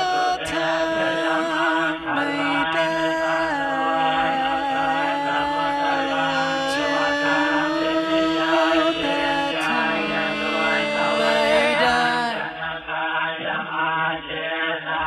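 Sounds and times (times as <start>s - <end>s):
layered voices chanting: 0.0s - 15.0s
backing music: 7.1s - 12.8s.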